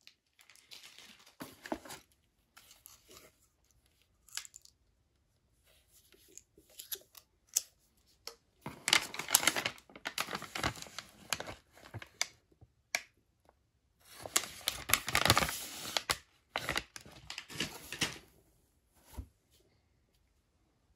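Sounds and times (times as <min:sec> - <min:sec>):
plastic packaging crinkling: 0:00.0 - 0:02.1, 0:08.7 - 0:12.3, 0:14.1 - 0:18.2.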